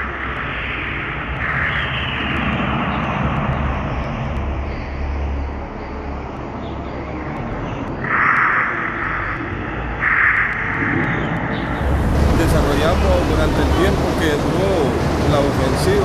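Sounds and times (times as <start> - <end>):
aircraft engine droning: 11.6 - 16.0
engine whine falling in pitch: 11.6 - 16.0.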